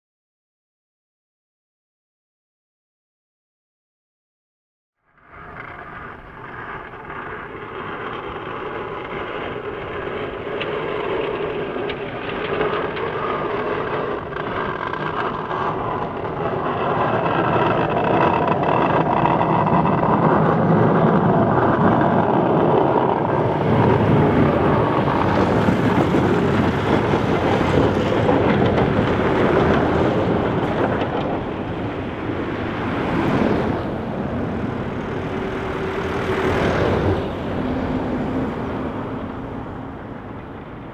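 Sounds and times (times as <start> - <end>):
plow blade pushing snow: 5.6 - 40.8
diesel truck passing: 20.0 - 40.9.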